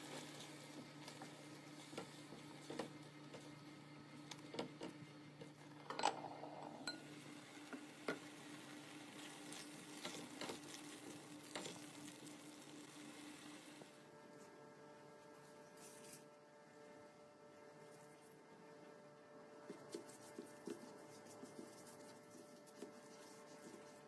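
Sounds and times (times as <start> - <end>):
faint steady hum: 0.0 - 24.0
light sizzling: 6.8 - 13.9
spatula stirring thick sauce: 19.9 - 24.0.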